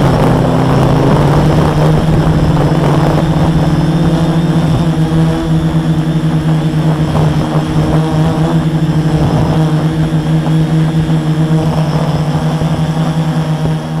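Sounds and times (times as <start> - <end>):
quadcopter motors buzzing: 0.0 - 14.0.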